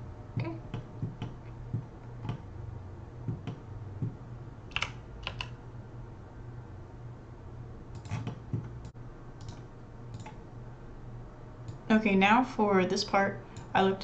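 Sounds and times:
keyboard and mouse clicking: 2.2s - 2.4s, 3.3s - 4.1s, 4.7s - 5.6s, 8.0s - 8.8s, 9.4s - 10.4s.

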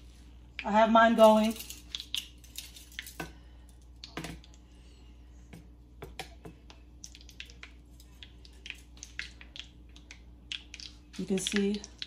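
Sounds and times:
low steady hum: 0.0s - 12.0s
food deep-frying in hot oil: 6.7s - 12.0s.

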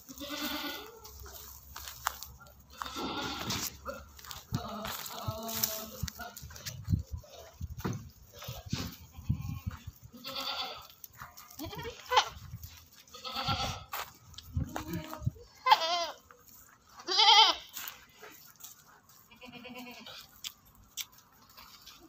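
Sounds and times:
goats bleating: 0.0s - 1.2s, 2.6s - 6.6s, 8.4s - 12.4s, 13.0s - 14.0s, 14.6s - 16.3s, 16.9s - 17.8s, 19.2s - 20.4s.

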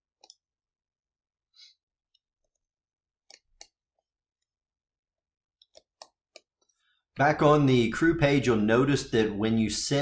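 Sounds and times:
computer mouse clicks: 0.1s - 0.4s, 2.1s - 3.8s, 5.6s - 6.7s.

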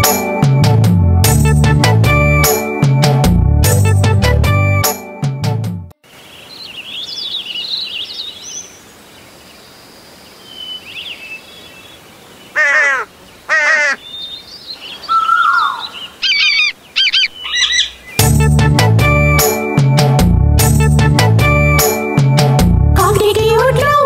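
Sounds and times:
small birds chirping: 6.1s - 18.3s
falling bird call: 10.5s - 18.2s
crow cawing: 12.5s - 14.1s, 15.0s - 18.0s
parrot squawks: 15.1s - 18.0s.

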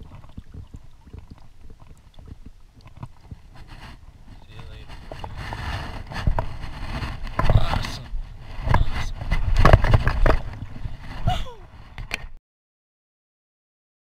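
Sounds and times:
rustling and scraping knocks: 2.3s - 12.4s.

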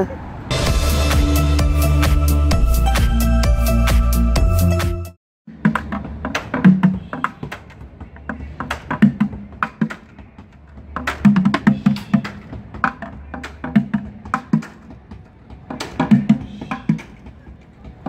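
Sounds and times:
low bass line: 0.5s - 5.2s.

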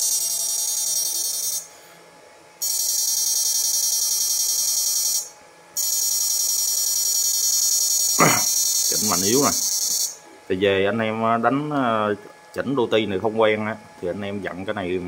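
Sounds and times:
high-pitched electronic whine: 0.0s - 1.7s.

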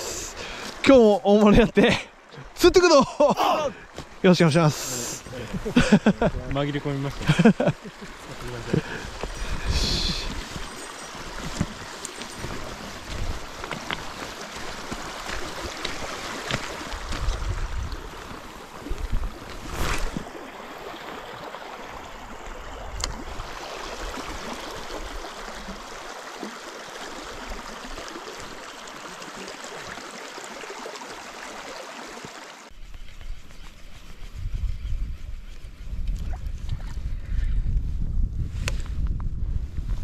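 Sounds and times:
water lapping at shore: 0.0s - 37.2s
wind buffeting microphone: 8.3s - 20.4s, 32.8s - 40.0s.

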